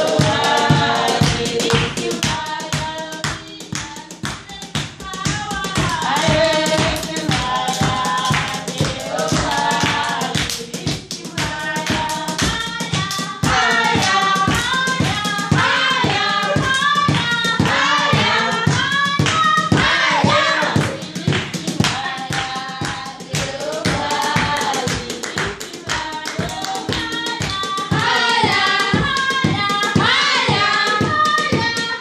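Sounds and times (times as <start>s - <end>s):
group singing worship song: 0.0s - 32.0s
rhythmic hand clapping: 0.0s - 32.0s.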